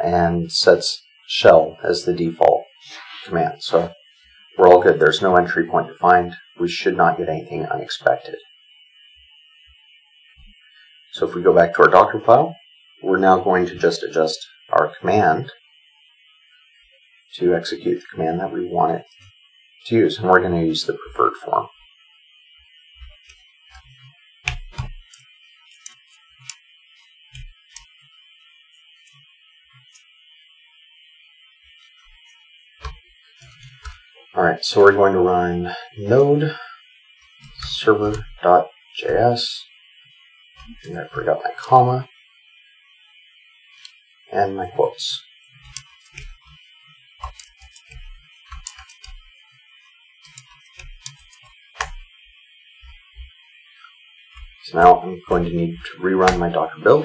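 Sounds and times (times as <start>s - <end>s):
faint high-pitched whine: 0.0s - 57.0s
keyboard and mouse clicks: 23.1s - 25.2s, 25.8s - 26.6s, 32.8s - 34.0s, 45.6s - 46.6s, 47.2s - 49.2s, 50.2s - 52.0s
typing on computer keyboard: 47.2s - 49.2s, 50.2s - 52.0s.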